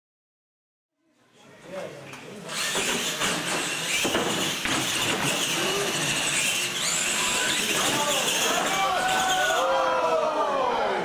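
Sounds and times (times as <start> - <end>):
rc trucks electric motor whine: 2.4 - 10.2.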